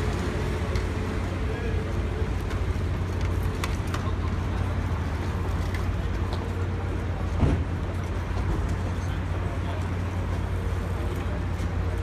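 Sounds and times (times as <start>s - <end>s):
bicycles clicking and rattling: 0.0s - 12.0s
ferry engine low rumble: 0.0s - 12.0s
murmur of crowd: 0.0s - 12.0s
thump: 7.4s - 7.7s.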